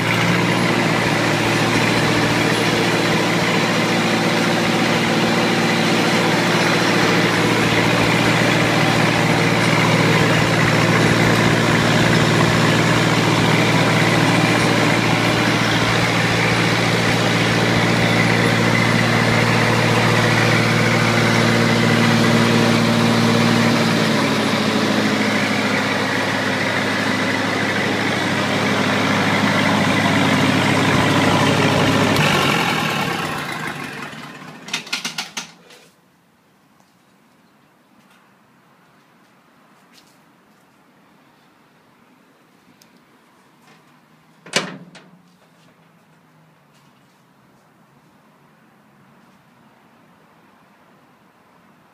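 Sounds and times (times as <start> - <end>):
welder engine idling: 0.0 - 35.4
engine winding down with chuffs: 0.0 - 35.6.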